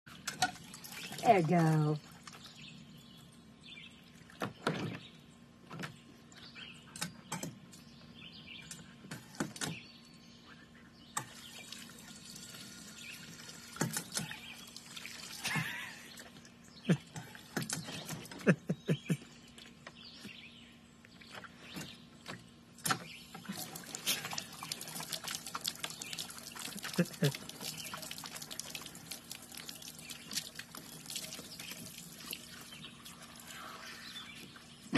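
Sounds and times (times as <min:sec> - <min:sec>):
water fountain spurting and splashing: 0:00.1 - 0:02.6, 0:11.2 - 0:18.2, 0:22.9 - 0:34.9
dog lapping water: 0:23.4 - 0:34.4.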